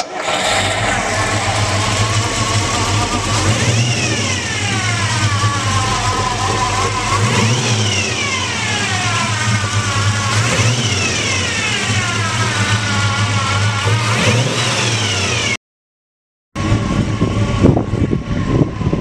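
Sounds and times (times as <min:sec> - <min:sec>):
car engine idling and revving: 0:00.0 - 0:15.6, 0:16.6 - 0:19.0.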